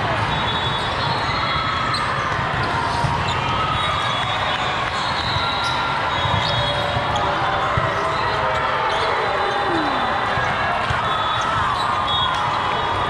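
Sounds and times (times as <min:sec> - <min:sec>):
hubbub of many voices: 0:00.0 - 0:13.0
shoes squeaking on court floor: 0:05.2 - 0:10.0.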